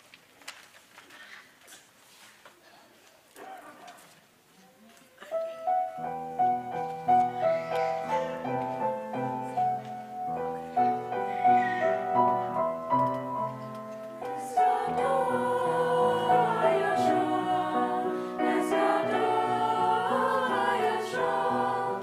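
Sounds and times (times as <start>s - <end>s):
grand piano playing: 5.4s - 22.0s
mixed choir singing: 14.2s - 22.0s.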